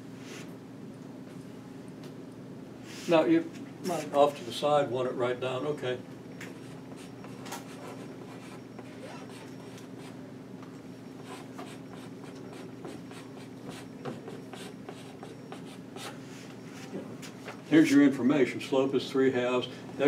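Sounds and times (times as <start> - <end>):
chalk scratching on blackboard: 6.9 - 10.2, 11.2 - 16.9.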